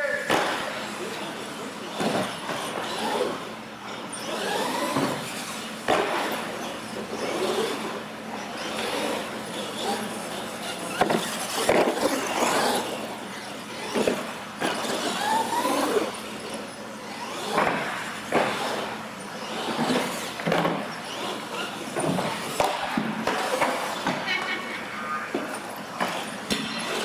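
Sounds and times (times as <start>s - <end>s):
toy truck motor whine: 4.1s - 5.3s, 6.6s - 17.6s
toy trucks knocking and clattering: 8.6s - 13.1s, 13.7s - 16.6s.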